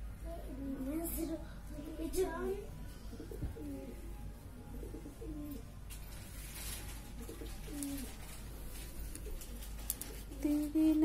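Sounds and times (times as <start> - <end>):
pigeon cooing: 3.0 - 5.8, 7.0 - 10.8.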